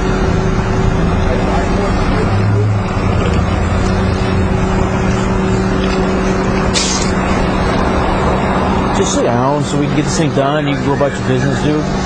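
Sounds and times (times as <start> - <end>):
electrical hum: 0.0 - 12.0
brief scratchy sound: 6.7 - 7.2.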